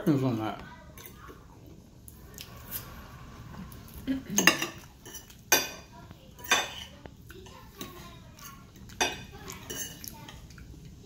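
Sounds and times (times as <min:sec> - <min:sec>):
knife and fork clinking on a plate: 0:04.4 - 0:10.4.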